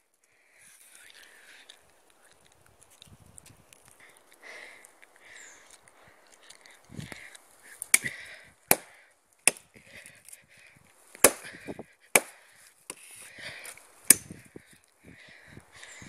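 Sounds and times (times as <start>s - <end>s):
wood splintering: 7.2s - 10.1s, 11.1s - 13.3s
blade striking wooden pole: 8.7s - 9.7s, 11.2s - 11.6s, 12.2s - 13.0s, 14.1s - 14.3s.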